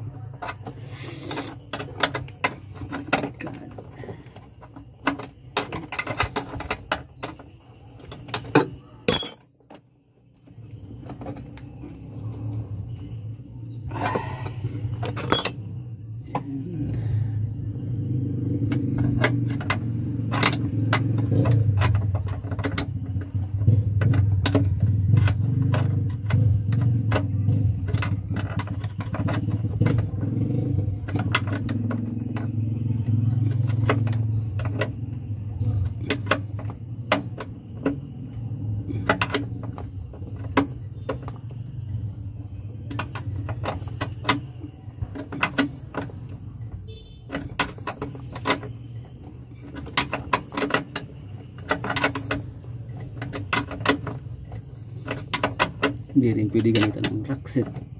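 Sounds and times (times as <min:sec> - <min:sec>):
steady low hum: 0:00.0 - 0:57.9
metal hand tools clinking: 0:09.1 - 0:09.6, 0:15.0 - 0:15.6.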